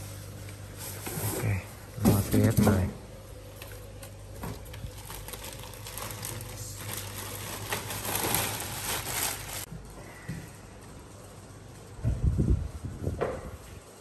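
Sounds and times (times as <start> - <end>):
plastic bag crinkling: 3.6 - 9.7.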